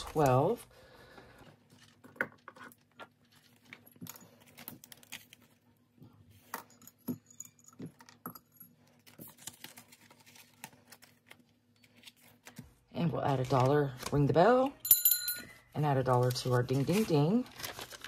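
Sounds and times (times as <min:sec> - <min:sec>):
paper bills rustling: 0:16.0 - 0:18.0.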